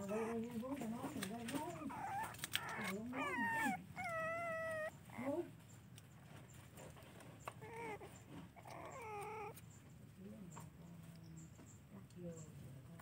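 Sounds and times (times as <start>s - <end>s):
puppy whimpering: 0.0s - 10.0s.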